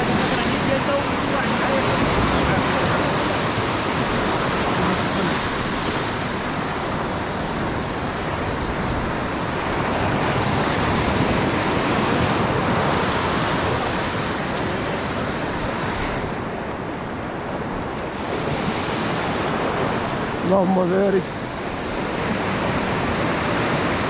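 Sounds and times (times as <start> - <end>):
ocean surf breaking on sand: 0.0 - 24.0.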